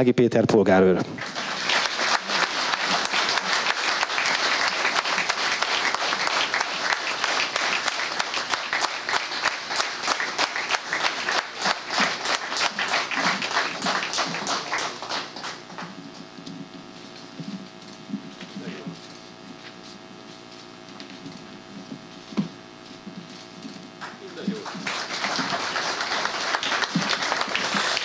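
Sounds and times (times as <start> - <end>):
audience applauding: 1.1 - 16.2, 24.0 - 28.0.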